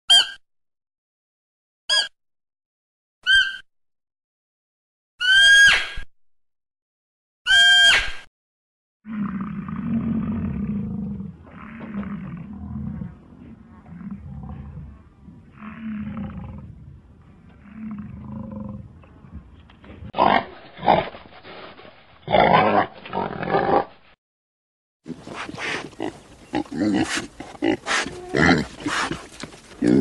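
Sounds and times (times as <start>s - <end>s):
large animal low calls: 9.1s - 19.0s
pigs squealing and grunting: 22.3s - 23.9s, 25.4s - 30.0s.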